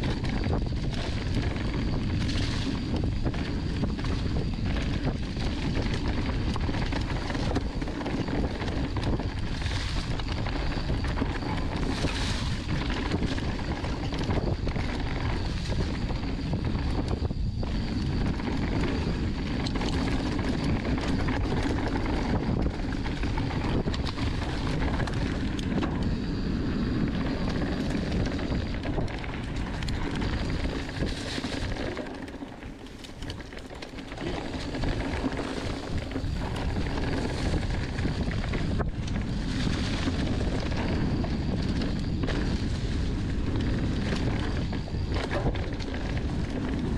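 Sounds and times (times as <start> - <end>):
bike tyres rumbling on dirt: 0.0 - 46.9
wind on microphone: 0.0 - 46.9
bike clicks and knocks: 16.7 - 46.9.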